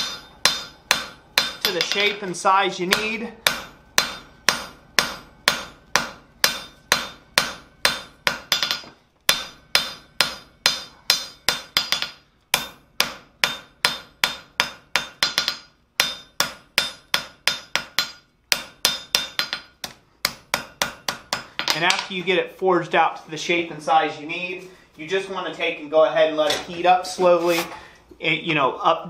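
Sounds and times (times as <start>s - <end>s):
hammer striking metal on anvil: 0.0s - 2.2s, 2.9s - 22.1s.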